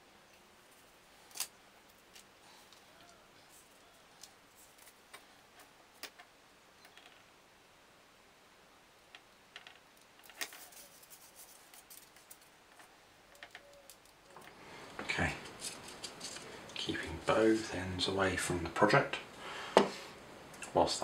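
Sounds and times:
small parts clicking and tapping: 9.1 - 14.6.

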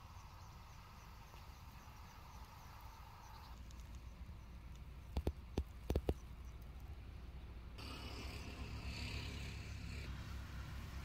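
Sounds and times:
faint high chirping: 0.0 - 5.3.

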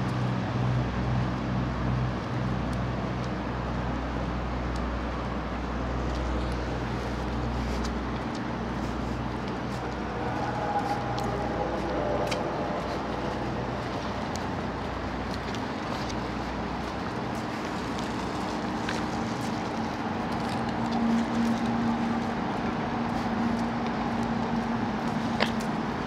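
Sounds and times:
low hum of engines: 0.0 - 26.0
steady tone: 9.1 - 14.8.

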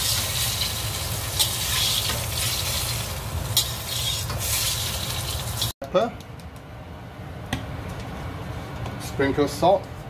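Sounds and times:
chicken sizzling in hot oil: 0.0 - 5.8.

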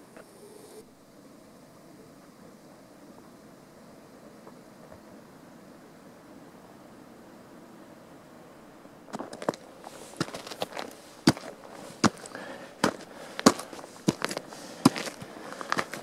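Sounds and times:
footsteps crunching on frozen snow: 9.1 - 16.0.

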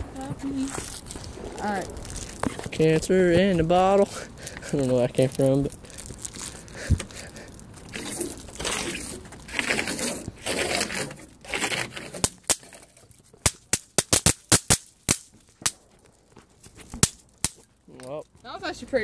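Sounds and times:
wrapper rustling and crinkling: 0.2 - 18.6
bang snaps popping: 13.4 - 16.2.

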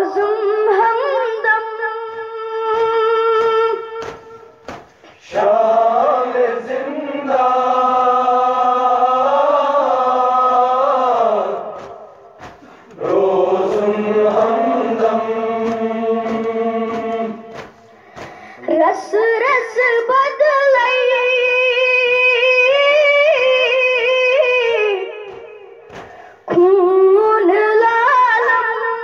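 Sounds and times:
wordless chorus of voices: 2.7 - 19.8.

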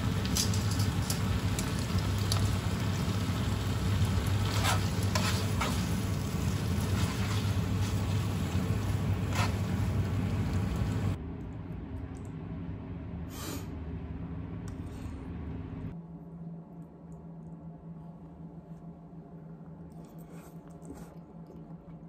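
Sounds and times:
food sizzling in a frying pan: 0.0 - 11.2
steady low hum: 0.0 - 22.0.

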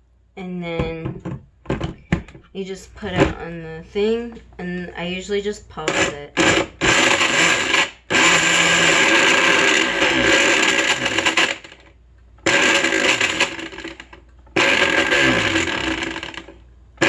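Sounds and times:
blender chopping fruit: 5.9 - 11.8, 12.4 - 16.6.

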